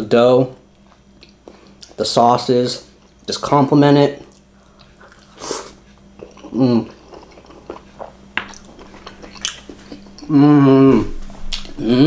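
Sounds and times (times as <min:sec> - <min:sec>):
chewing with wet mouth clicks: 0:00.8 - 0:02.0, 0:04.3 - 0:05.4, 0:06.2 - 0:10.3
person humming mmm: 0:05.4 - 0:07.5, 0:09.9 - 0:12.0.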